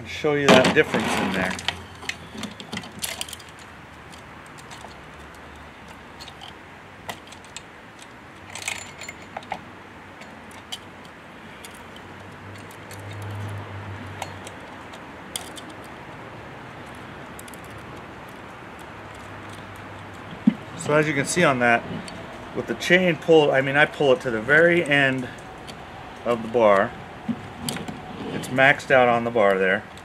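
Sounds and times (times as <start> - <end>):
chain links clinking: 1.4 - 16.1, 16.7 - 22.4.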